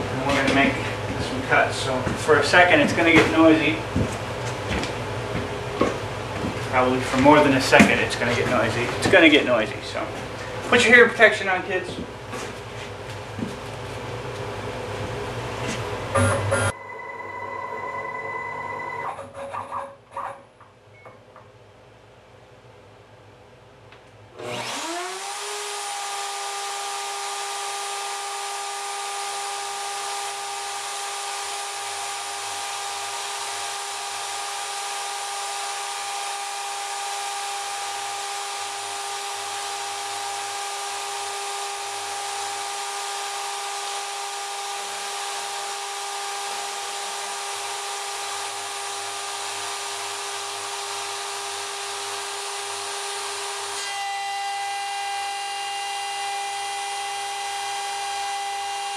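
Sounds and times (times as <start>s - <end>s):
low hum: 14.4s - 21.1s
wood router high whine: 24.4s - 58.9s.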